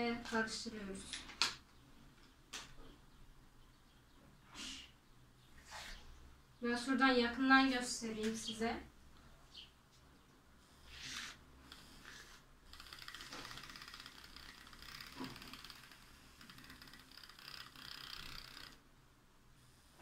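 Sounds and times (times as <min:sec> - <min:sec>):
milk frother whirring: 0:10.7 - 0:18.8.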